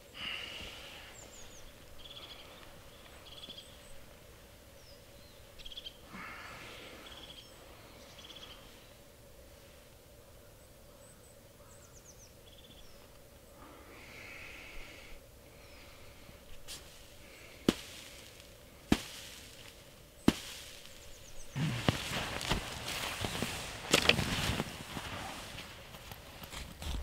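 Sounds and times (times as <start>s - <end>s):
small bird calling: 0.0s - 9.1s, 10.3s - 24.6s
footsteps on snow: 16.5s - 27.0s
sharp cracks: 17.6s - 21.0s.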